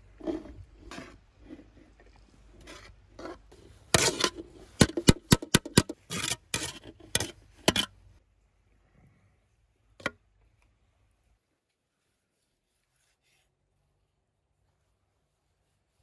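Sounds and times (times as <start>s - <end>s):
metal spoon scraping a tray: 2.6s - 7.9s.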